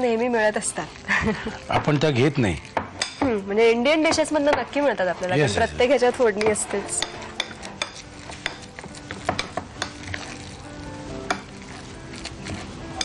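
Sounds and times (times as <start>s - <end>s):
spoon mashing wet food: 5.9s - 13.0s.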